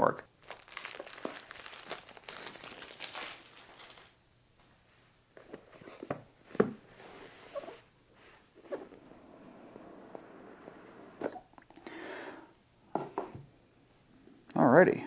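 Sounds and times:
plastic shrink wrap crinkling: 0.2s - 4.2s.

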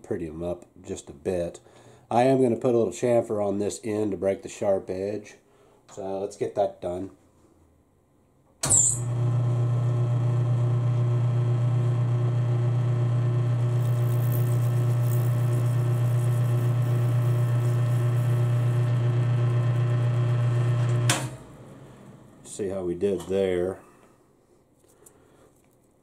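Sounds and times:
metal lathe motor humming: 9.0s - 21.1s.

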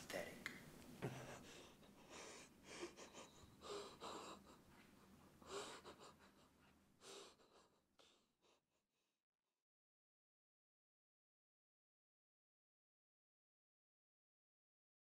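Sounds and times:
man breathing hard: 1.0s - 8.7s.

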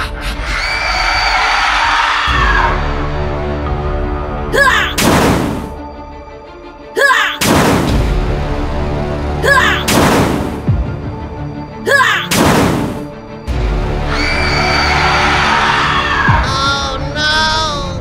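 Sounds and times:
background music: 0.0s - 18.0s
loud bang: 5.0s - 5.7s, 7.4s - 8.0s, 9.9s - 10.7s, 12.3s - 13.1s.

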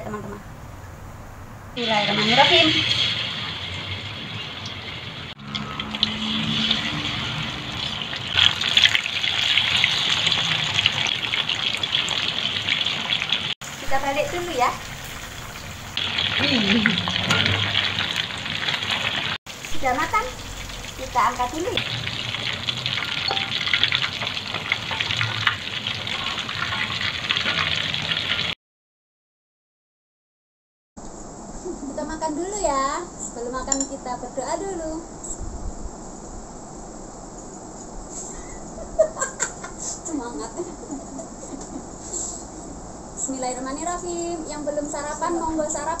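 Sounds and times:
oil spattering crackles: 1.8s - 28.5s
prawns deep-frying in hot oil: 1.8s - 28.6s.

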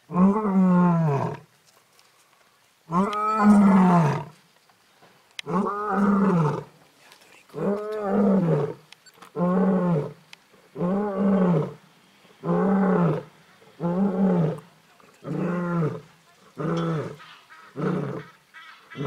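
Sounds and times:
lioness roaring: 0.1s - 1.4s, 2.9s - 4.3s, 5.4s - 6.7s, 7.5s - 11.8s, 12.4s - 18.3s.

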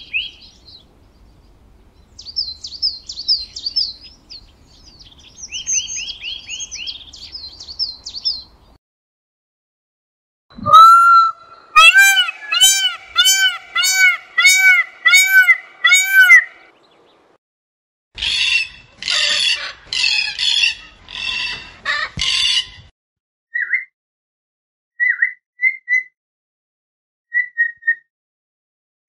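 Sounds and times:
harsh squawks: 10.6s - 16.7s
peafowl calling: 10.6s - 16.7s, 18.2s - 22.8s.

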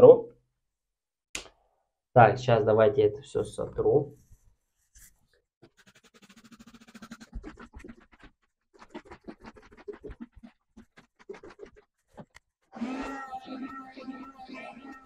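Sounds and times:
scratchy rubbing on glass: 5.6s - 12.2s.

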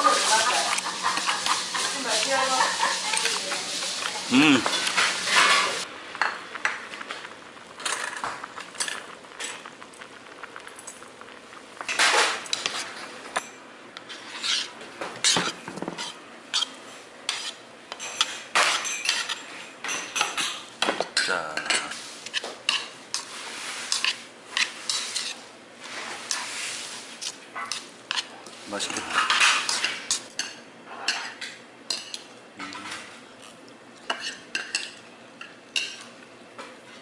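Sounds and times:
metal utensils clinking against bowl: 0.8s - 3.7s.

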